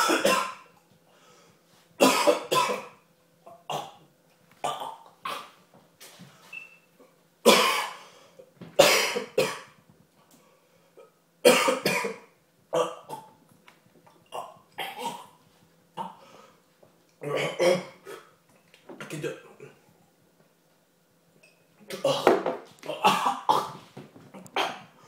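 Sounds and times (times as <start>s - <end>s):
man coughing hard: 0.0s - 0.6s, 2.0s - 3.0s, 7.5s - 8.0s, 8.8s - 9.7s, 11.4s - 13.3s, 21.9s - 23.8s.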